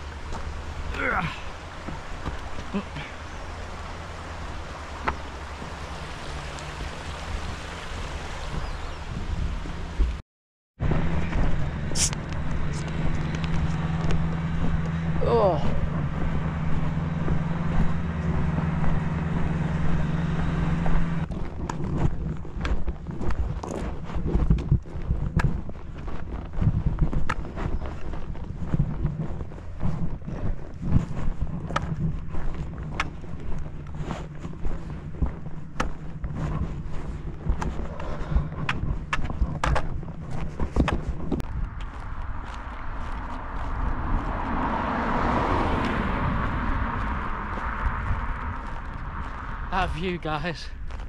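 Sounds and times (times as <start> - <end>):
footsteps walking: 0.0 - 7.5, 11.1 - 51.0
wind noise: 0.0 - 10.2, 10.8 - 51.0
motor hum: 10.8 - 45.5.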